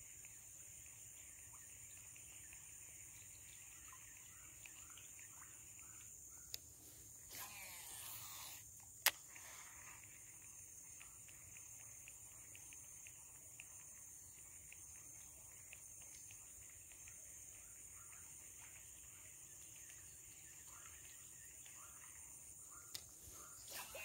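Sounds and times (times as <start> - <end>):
high insect drone: 0.0 - 24.0
reel spool whirring: 7.2 - 24.0.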